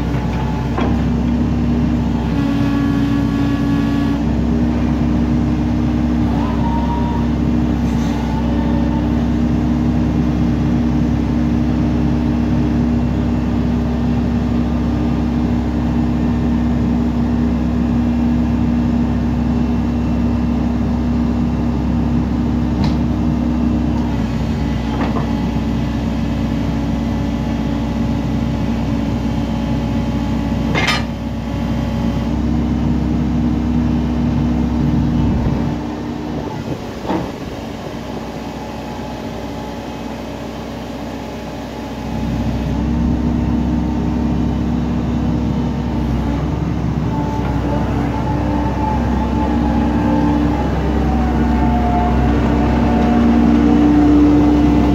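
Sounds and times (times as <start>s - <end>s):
diesel engine and hydraulic whine: 0.0s - 54.9s.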